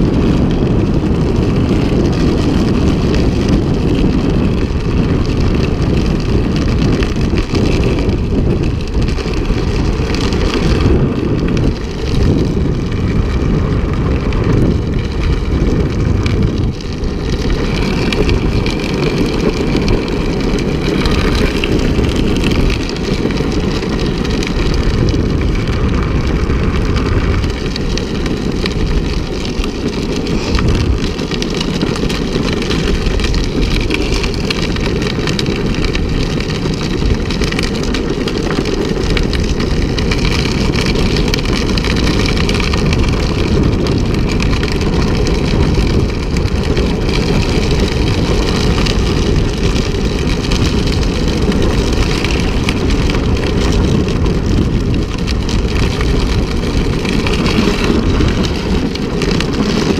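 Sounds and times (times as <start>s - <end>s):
wheels rolling on asphalt: 0.0s - 59.9s
wind on microphone: 0.0s - 59.9s.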